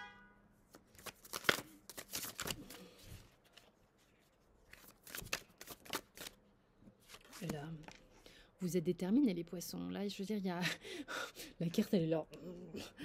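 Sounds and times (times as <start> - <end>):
cards being shuffled: 0.7 - 6.4, 7.0 - 8.1.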